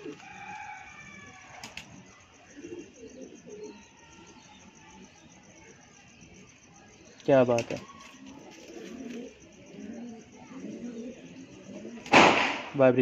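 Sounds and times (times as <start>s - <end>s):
pigeon cooing: 0.0s - 12.2s
wings flapping: 1.5s - 2.0s, 7.4s - 9.4s.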